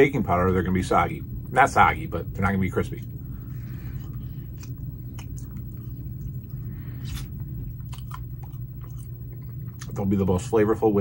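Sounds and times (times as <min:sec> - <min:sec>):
steady low hum: 0:00.0 - 0:11.0
man chewing: 0:03.0 - 0:10.0.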